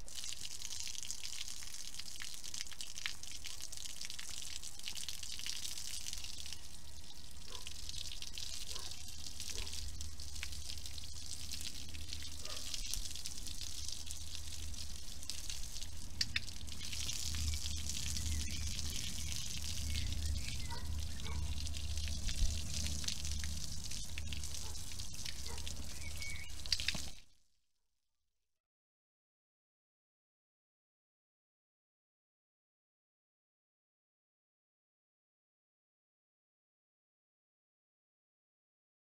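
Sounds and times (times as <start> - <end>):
hose water splashing: 0.0 - 27.2
water dripping: 0.0 - 27.3.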